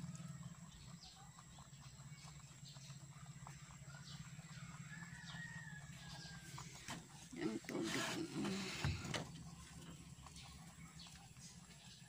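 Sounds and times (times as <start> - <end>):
low steady hum: 0.0 - 12.0
rabbits chewing pellets: 0.0 - 12.0.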